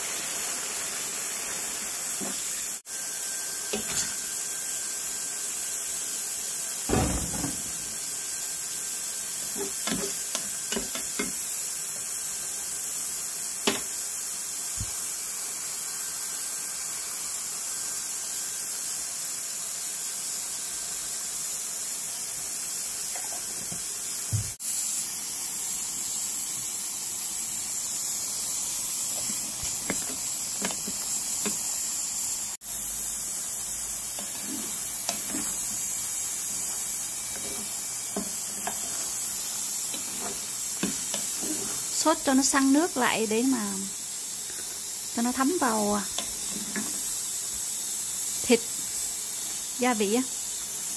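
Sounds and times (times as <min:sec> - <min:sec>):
hiss of steam and bubbling: 0:00.0 - 0:50.9.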